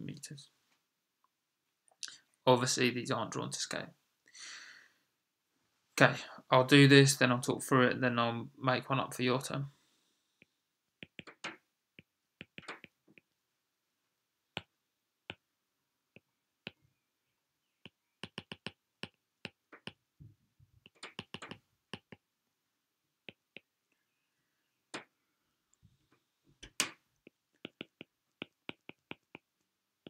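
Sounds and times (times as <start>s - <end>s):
stylus tapping on glass screen: 11.0s - 13.3s, 17.8s - 20.0s, 20.8s - 22.2s, 26.6s - 29.5s.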